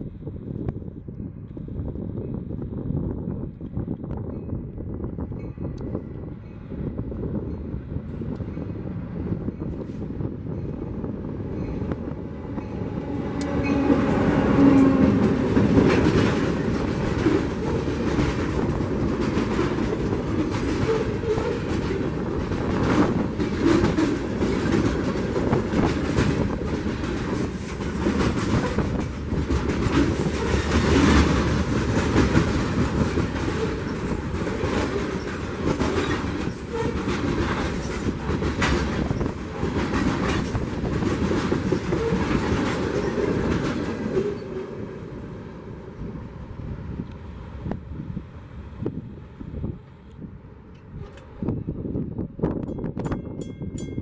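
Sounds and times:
train wheels rumbling: 0.0 - 54.0
wheels clicking over rail joints: 14.7 - 44.6.

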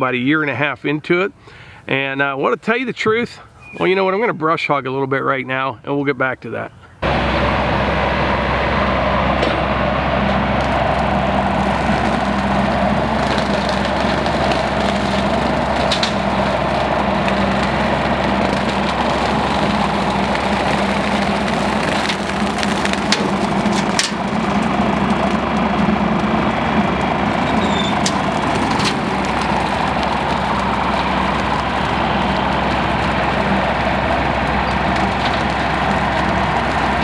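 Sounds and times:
rotary cutter mowing brush: 7.0 - 37.0
tractor diesel engine running: 7.0 - 37.0
sharp cracks: 9.2 - 37.0.

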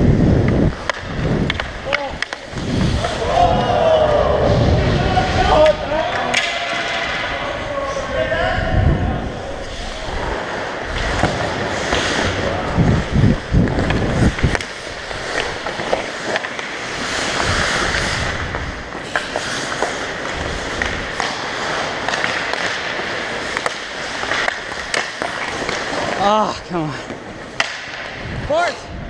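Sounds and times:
wind buffeting microphone: 0.0 - 6.0, 7.7 - 11.0, 12.3 - 14.6, 28.2 - 29.0
skate blades scraping ice: 0.0 - 7.5, 9.5 - 28.7
hockey sticks and puck clacking: 0.4 - 4.3, 5.2 - 8.3, 9.4 - 28.8.

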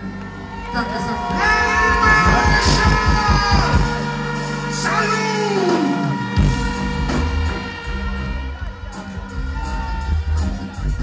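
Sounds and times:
heavy bass beat: 1.2 - 5.6.

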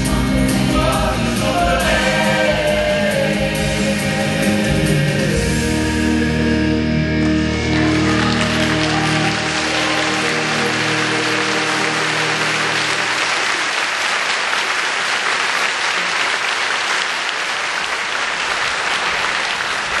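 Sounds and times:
held music chord: 0.0 - 13.5
audience applauding: 7.5 - 20.0.

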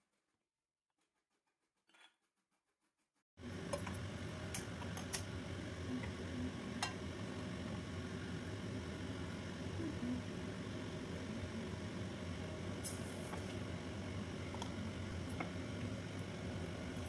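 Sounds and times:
low background hum: 3.4 - 17.0.

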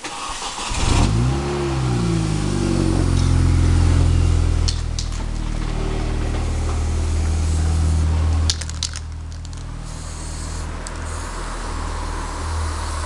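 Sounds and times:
low engine hum: 1.0 - 13.0
aerosol spray paint hissing: 9.8 - 13.0.

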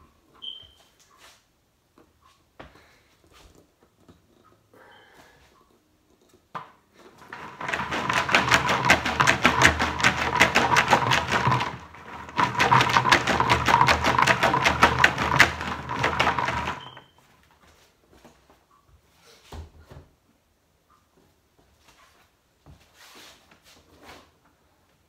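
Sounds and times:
coins rattling in plastic jug: 7.2 - 17.0.

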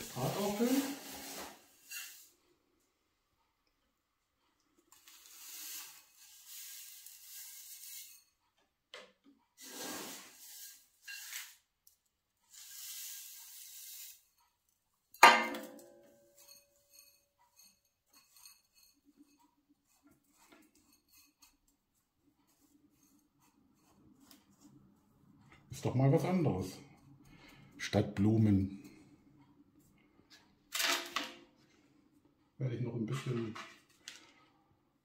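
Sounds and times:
grains poured into a bowl: 0.0 - 2.3, 5.0 - 8.3, 9.6 - 11.6, 12.5 - 14.2.

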